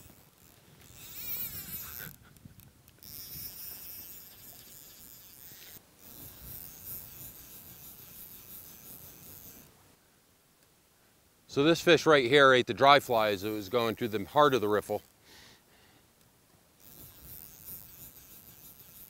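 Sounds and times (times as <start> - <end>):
high-pitched insect buzzing: 0.0 - 2.2, 3.0 - 9.7, 16.8 - 19.0.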